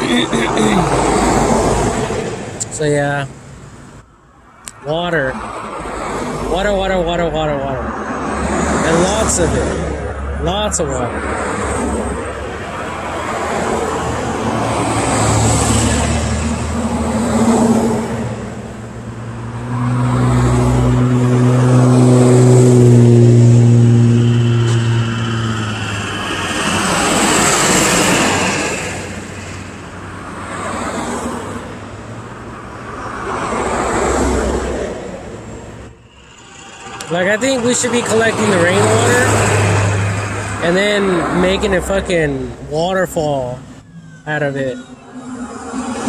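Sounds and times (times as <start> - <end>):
traffic driving past: 0.0 - 46.0
heavy engine low drone: 35.1 - 39.4, 40.0 - 46.0.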